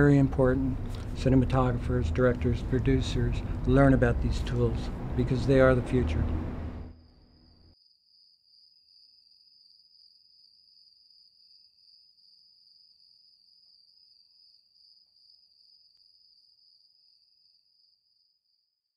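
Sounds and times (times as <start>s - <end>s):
low insect chirp: 6.3s - 18.9s
crickets trilling: 6.9s - 18.6s.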